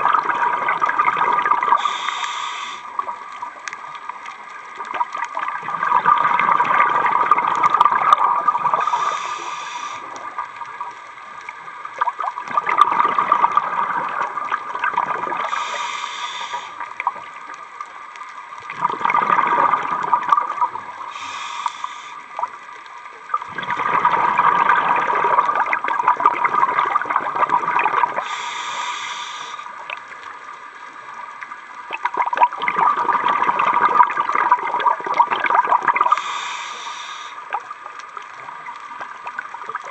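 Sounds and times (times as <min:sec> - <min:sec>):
exhaled bubbles rushing: 0:00.0 - 0:02.1, 0:04.8 - 0:09.2, 0:11.9 - 0:15.6, 0:18.6 - 0:21.1, 0:23.3 - 0:28.3, 0:31.9 - 0:36.3
diver breathing through regulator: 0:01.8 - 0:03.0, 0:08.7 - 0:10.2, 0:15.4 - 0:16.9, 0:21.0 - 0:22.3, 0:28.2 - 0:29.7, 0:36.0 - 0:37.5.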